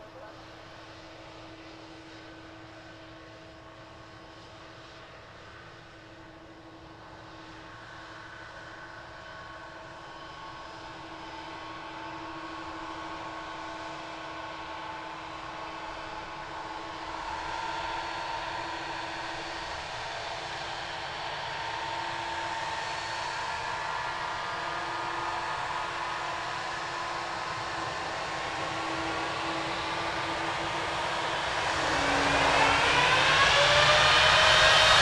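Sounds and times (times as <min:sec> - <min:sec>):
jet engines whine and rumble: 0:00.0 - 0:35.0.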